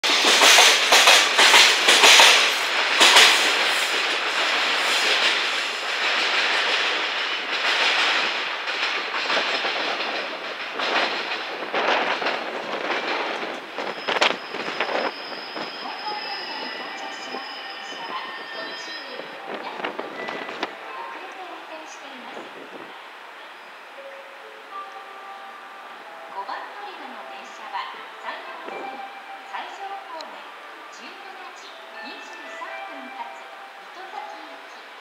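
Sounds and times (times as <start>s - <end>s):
train wheels clattering over rails: 0.0s - 15.8s.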